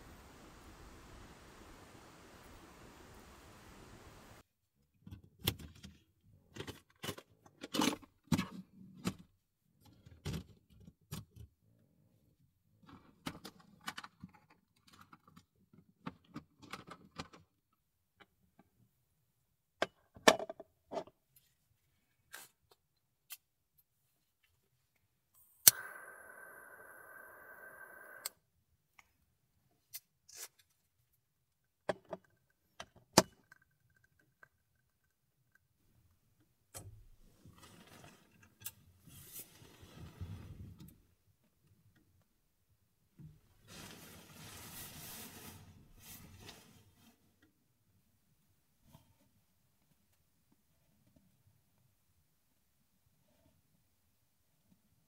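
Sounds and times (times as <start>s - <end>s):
lighter clicking and hissing: 25.6s - 28.3s.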